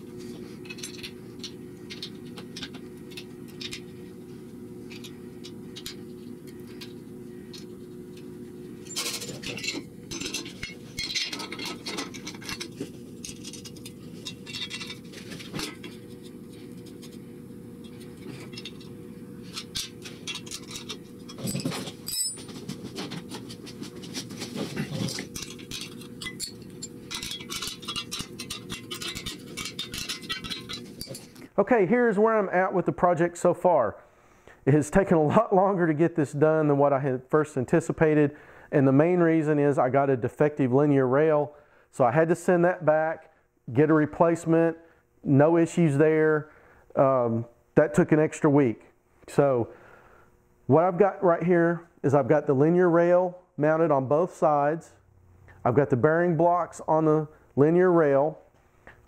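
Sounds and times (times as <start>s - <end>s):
steady low hum: 0.0s - 59.0s
metal bolts and wrench clinking: 0.6s - 3.9s, 8.8s - 16.0s, 17.9s - 22.6s, 25.0s - 31.4s.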